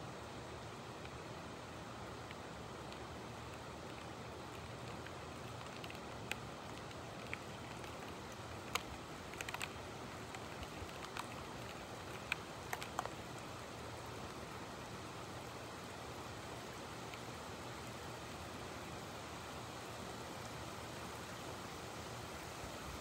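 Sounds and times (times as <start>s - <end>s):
rain hiss: 0.0s - 23.0s
raindrops ticking on hard surface: 0.7s - 18.4s.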